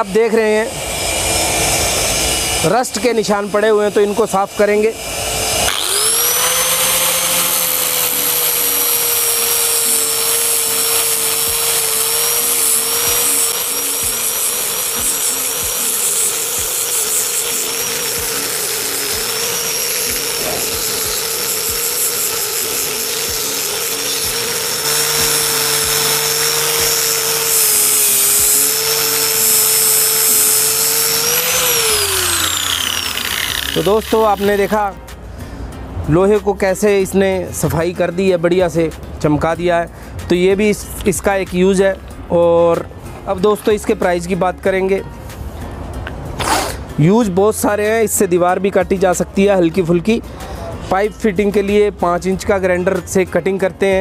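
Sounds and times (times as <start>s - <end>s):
angle grinder grinding metal: 0.0s - 35.1s.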